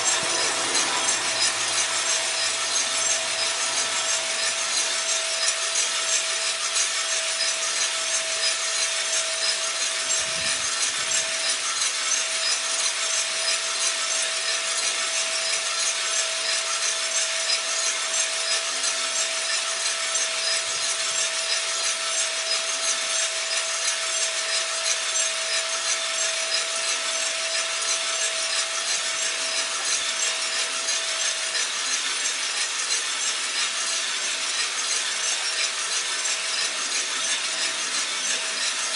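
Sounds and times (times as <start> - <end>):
fan and burner hiss: 0.0 - 38.9.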